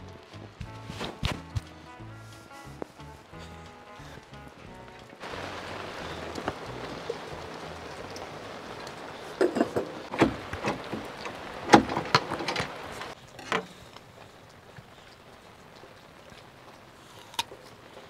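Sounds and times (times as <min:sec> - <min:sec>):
rain hissing: 0:00.0 - 0:18.0
kettle lid clinking: 0:09.4 - 0:10.3.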